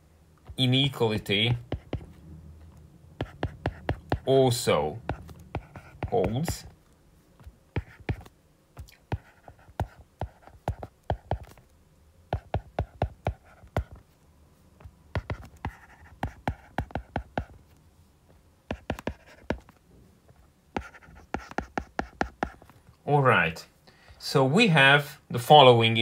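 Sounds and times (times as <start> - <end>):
faint pen scratching: 1.3 - 2.2, 3.2 - 4.4, 5.0 - 8.3, 9.1 - 11.7, 12.3 - 14.2, 14.8 - 17.7, 18.7 - 22.8.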